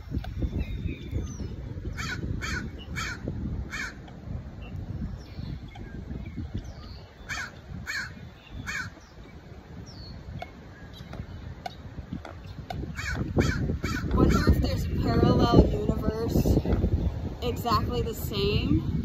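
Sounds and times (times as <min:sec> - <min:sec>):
wind rumble on microphone: 0:00.0 - 0:19.0
crows cawing: 0:02.0 - 0:04.0, 0:07.3 - 0:09.0, 0:12.9 - 0:14.2.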